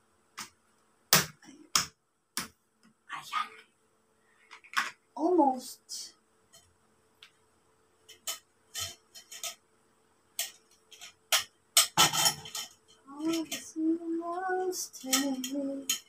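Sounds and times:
woman's voice: 5.2s - 6.1s, 13.1s - 15.9s
metal tubes clicking and knocking: 8.0s - 9.6s, 10.4s - 13.8s, 14.5s - 16.0s.

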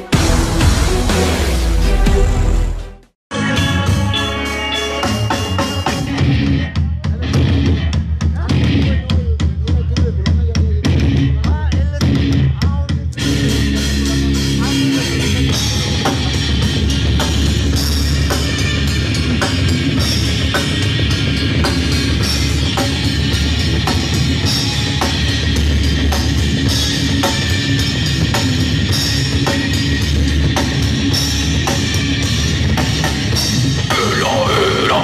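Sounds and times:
drum kit steady beat: 0.0s - 2.9s, 5.0s - 35.0s
live rock band playing: 3.3s - 9.2s, 13.2s - 35.0s.

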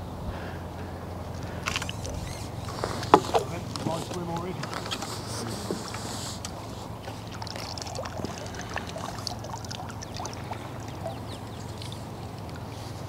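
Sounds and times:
steady low rumble: 0.0s - 13.0s
water splashing and dripping: 5.8s - 13.0s.

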